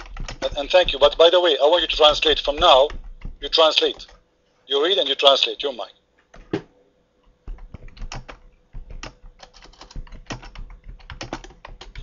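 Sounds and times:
computer keyboard typing: 0.0s - 4.2s, 7.2s - 12.0s.

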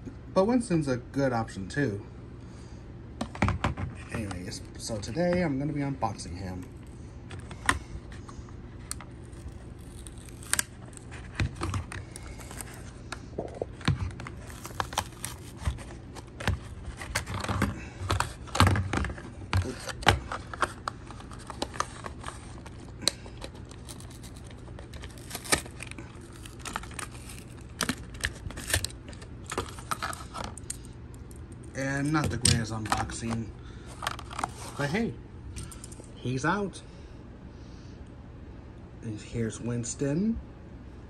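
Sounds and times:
blister pack tearing and crinkling: 8.9s - 13.1s, 14.0s - 18.6s, 19.6s - 30.8s.

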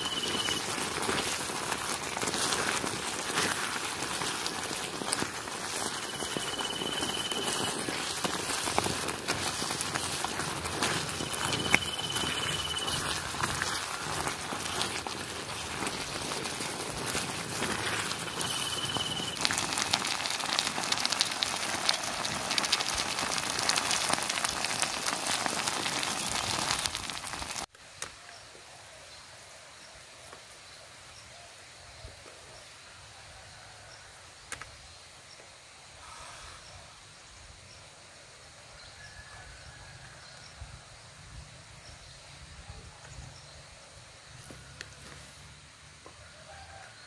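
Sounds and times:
shrimp sizzling in a pan: 0.0s - 27.7s.

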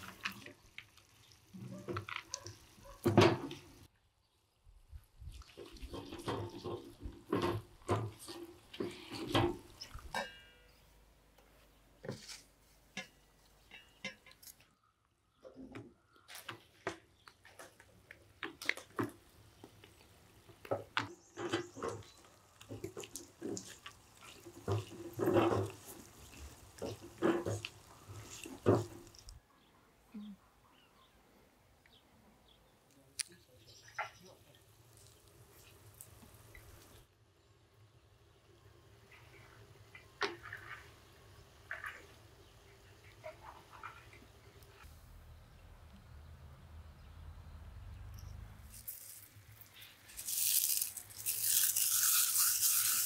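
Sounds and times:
spatula scraping sticky mixture: 21.3s - 29.3s.

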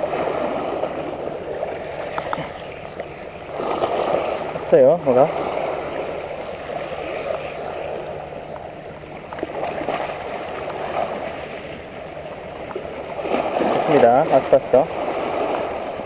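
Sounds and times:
waves lapping against rocks: 0.0s - 16.0s
faint clicks: 1.3s - 3.1s.

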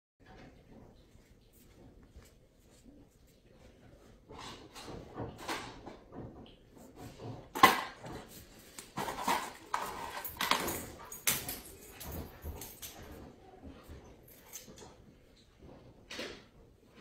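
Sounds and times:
clinks and clattering knocks: 4.3s - 15.1s.

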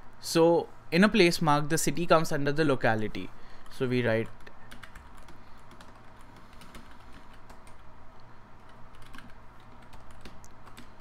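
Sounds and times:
keyboard typing clicks: 8.6s - 11.0s.

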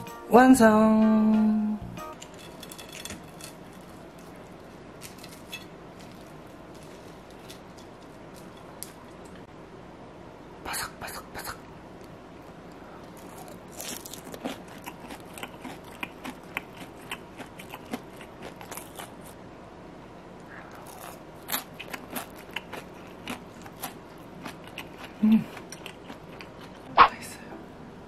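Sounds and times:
crunching while eating: 2.2s - 9.4s, 12.7s - 19.4s, 20.5s - 26.9s.

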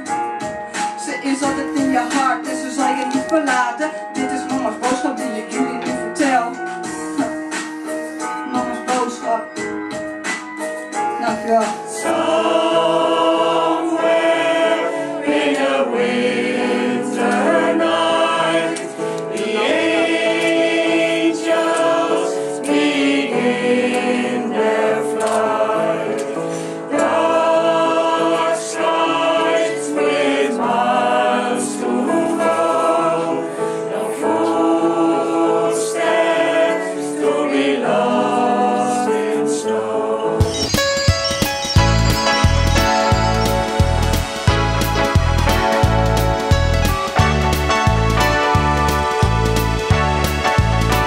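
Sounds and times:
singers breathing: 7.3s - 8.4s, 26.4s - 26.9s, 33.5s - 33.9s
mixed choir singing: 11.9s - 40.8s.

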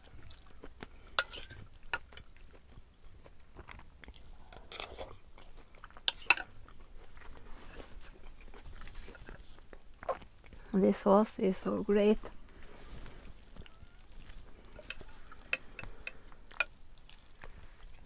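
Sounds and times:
chewing and smacking: 0.0s - 10.7s, 12.5s - 18.0s.

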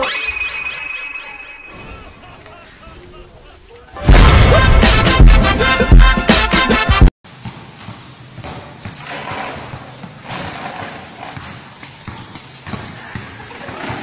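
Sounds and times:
basketball bouncing on court: 7.3s - 14.0s.

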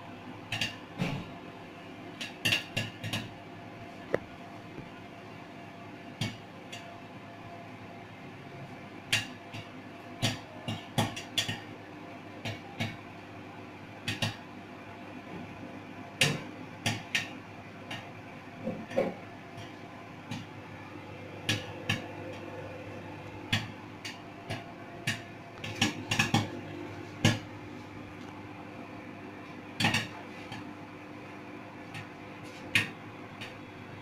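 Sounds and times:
microwave oven humming: 0.0s - 34.0s
popcorn popping: 0.4s - 1.0s, 2.1s - 3.4s, 6.1s - 6.9s, 9.0s - 13.2s, 14.0s - 14.5s, 15.3s - 27.6s, 29.7s - 31.2s, 31.8s - 33.7s.

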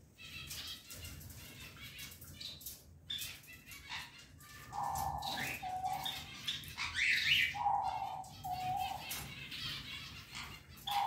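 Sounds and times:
bird calls: 0.2s - 11.0s
birds flapping and clambering on cage: 0.3s - 6.8s.

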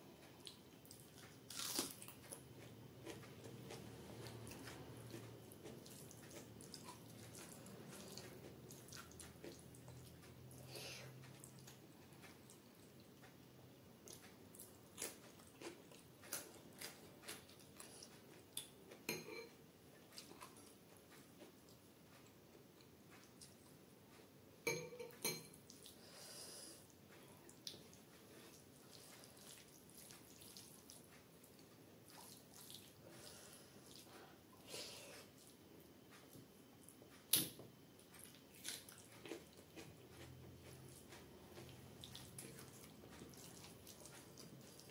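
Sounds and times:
fingers mixing wet rice: 0.4s - 13.0s, 27.2s - 34.3s, 38.0s - 44.9s.

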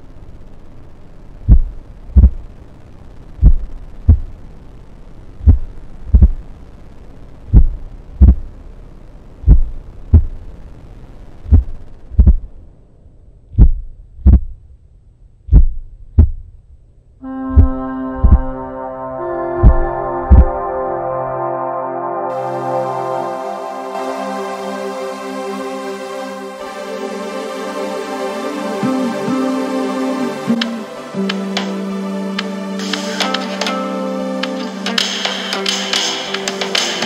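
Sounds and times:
background hiss: 0.0s - 20.6s, 22.3s - 37.0s
heartbeat thumps: 1.5s - 2.4s, 3.4s - 4.3s, 5.4s - 6.4s, 7.5s - 8.5s, 9.5s - 10.4s, 11.5s - 12.5s, 13.5s - 14.6s, 15.5s - 16.5s, 17.5s - 18.6s, 19.6s - 20.6s
music with held tones: 17.2s - 37.0s.

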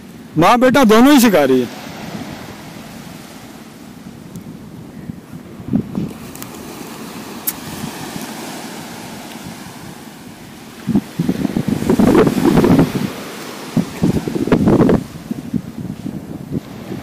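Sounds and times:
surf washing: 0.0s - 17.0s
wind buffeting microphone: 1.7s - 17.0s.

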